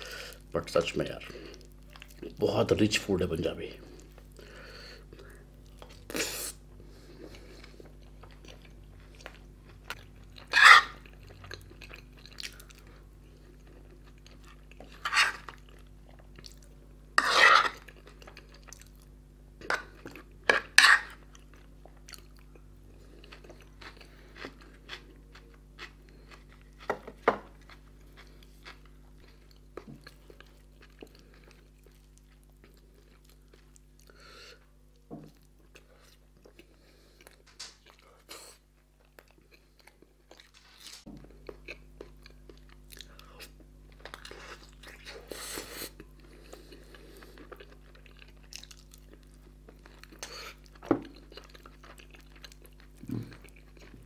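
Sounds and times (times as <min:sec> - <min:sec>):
faint steady hum: 0:00.0 - 0:54.0
spoon scraping a dish: 0:10.5 - 0:11.0, 0:15.0 - 0:15.5, 0:17.2 - 0:17.8, 0:20.5 - 0:21.2
chewing and mouth smacks: 0:19.7 - 0:34.7, 0:41.2 - 0:54.0.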